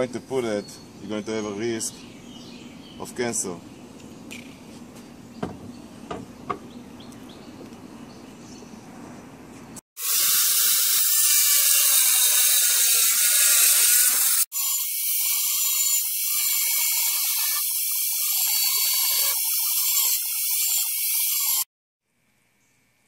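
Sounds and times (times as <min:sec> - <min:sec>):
angle grinder cutting board: 0:10.0 - 0:21.7.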